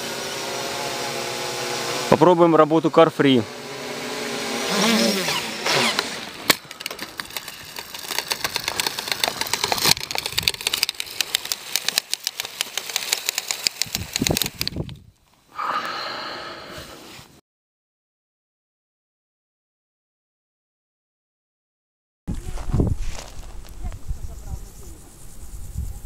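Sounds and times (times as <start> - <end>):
quadcopter motors whining down: 0.0 - 15.0
dense irregular crackling: 6.8 - 14.7.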